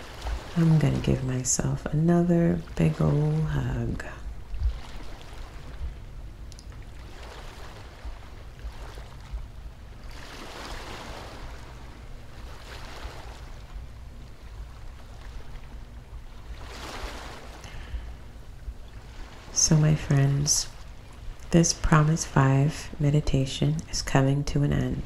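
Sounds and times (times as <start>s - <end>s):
low surf rumble: 0.0s - 25.0s
ocean waves washing in: 0.0s - 25.0s.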